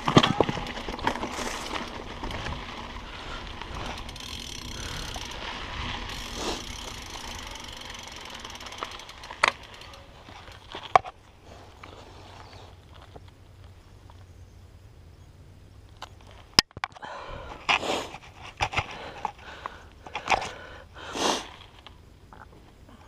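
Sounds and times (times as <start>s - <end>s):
bike freehub clicking rapidly: 0.0s - 11.0s
tyre rumble on dirt trail: 0.0s - 13.7s.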